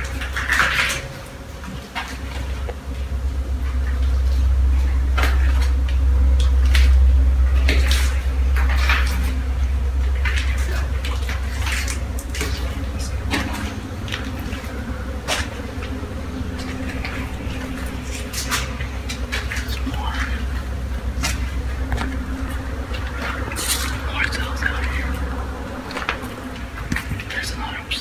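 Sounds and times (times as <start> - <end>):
low microphone rumble: 0.0 - 28.0.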